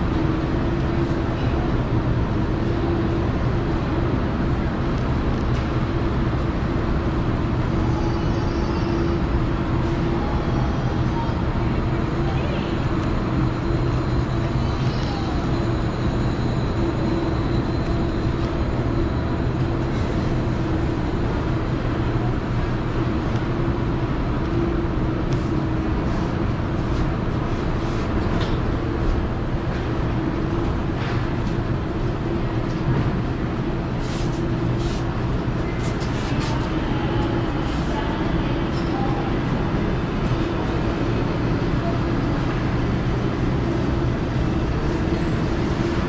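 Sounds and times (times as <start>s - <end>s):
refrigeration and ventilation hum: 0.0s - 46.0s.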